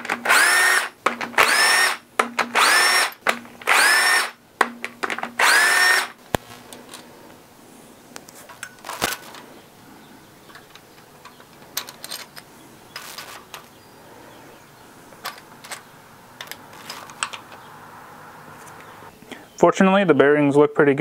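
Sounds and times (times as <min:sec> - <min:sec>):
light metallic clicks and clinks: 0:10.4 - 0:13.8.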